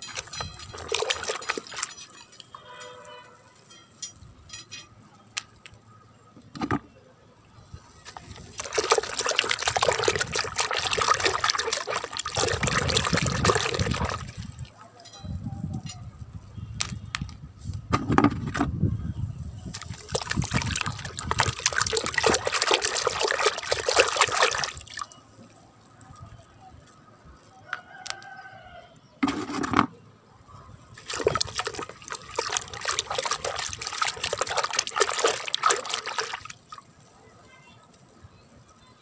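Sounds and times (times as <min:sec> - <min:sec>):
water sloshing in a bucket: 0:00.0 - 0:03.3, 0:08.0 - 0:14.8, 0:19.6 - 0:25.6, 0:29.2 - 0:30.0, 0:30.9 - 0:37.0.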